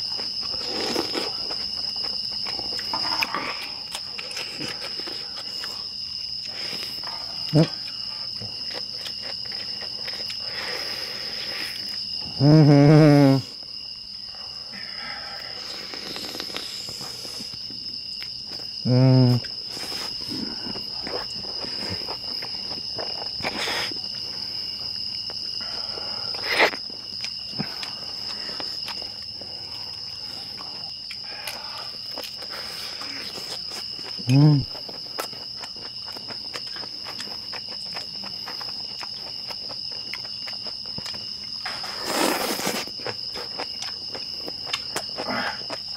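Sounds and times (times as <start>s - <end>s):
night insects chirping: 0.0s - 45.9s
man humming: 12.3s - 13.5s, 18.8s - 19.5s, 34.2s - 34.7s.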